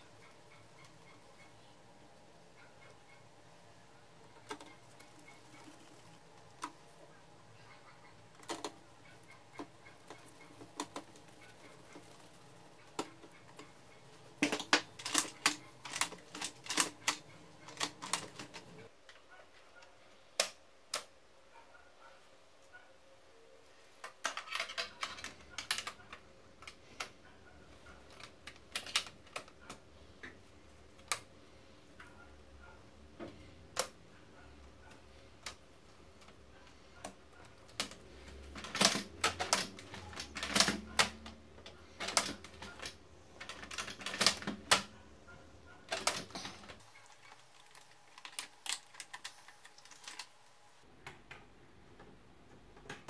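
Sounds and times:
printer parts clicking and knocking: 12.8 - 18.8, 37.0 - 44.9, 45.8 - 46.8.

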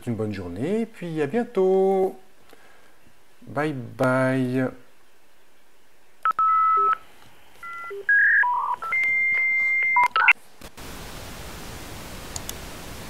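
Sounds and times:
electronic telephone beeps: 6.3 - 7.0, 7.6 - 10.4
static hiss: 10.2 - 13.0.

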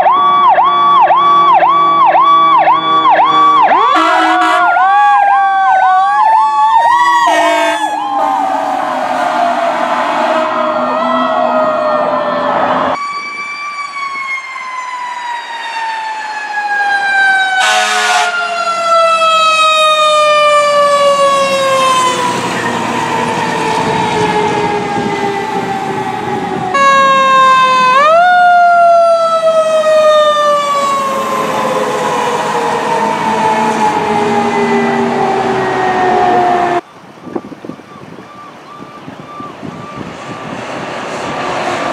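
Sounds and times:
fire truck sirens winding down: 0.0 - 41.9
short horn blast: 3.9 - 4.7, 7.3 - 10.6, 17.6 - 18.4.

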